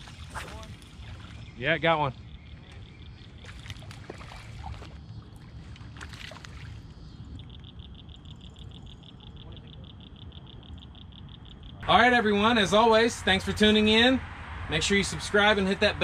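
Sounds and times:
fish splashing at the surface: 3.4 - 5.0.

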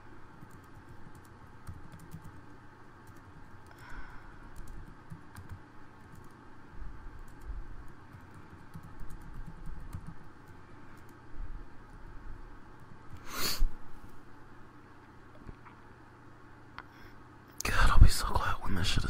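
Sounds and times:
keyboard typing clicks: 0.4 - 2.4, 4.5 - 6.4, 7.2 - 11.2.

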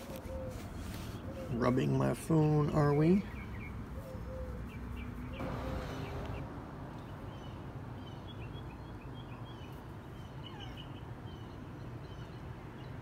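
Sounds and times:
low outdoor rumble: 0.0 - 8.1
small birds chirping: 0.0 - 13.0.

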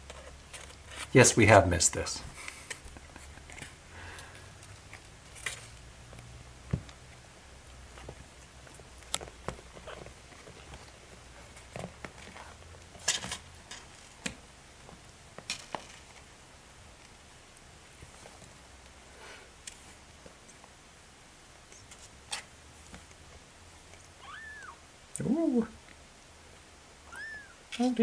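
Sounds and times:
kittens scratching in cardboard box: 8.0 - 14.2.

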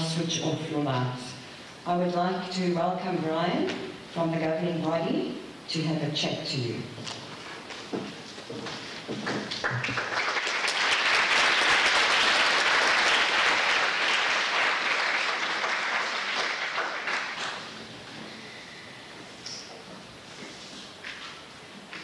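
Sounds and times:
audience clapping: 8.6 - 17.9.

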